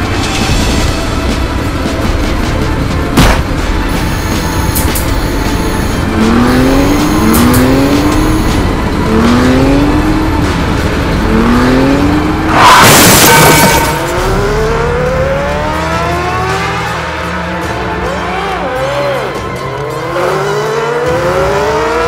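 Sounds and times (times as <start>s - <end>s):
engine revving: 4.4s - 22.0s.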